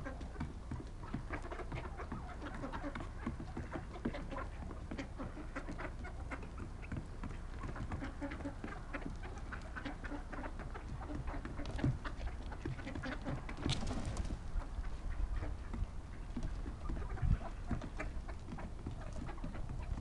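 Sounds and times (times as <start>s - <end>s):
ducks and turkeys calling: 0.0s - 20.0s.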